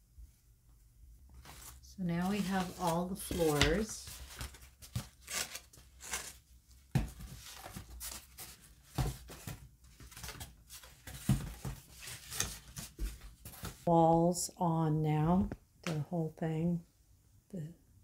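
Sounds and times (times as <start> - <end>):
cardboard sheets rustling and scraping: 1.3 - 13.9.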